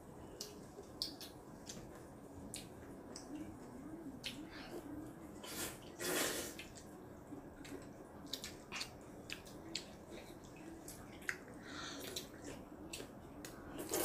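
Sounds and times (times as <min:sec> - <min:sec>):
children slurping noodles: 0:05.4 - 0:06.7.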